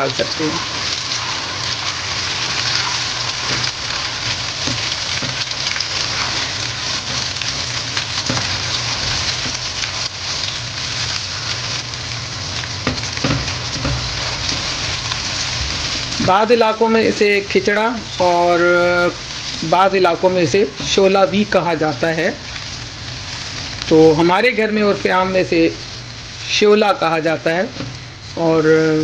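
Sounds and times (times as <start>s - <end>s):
meat sizzling in oil: 0.0s - 29.0s
spatula knocking wok: 2.4s - 10.6s, 12.7s - 16.5s.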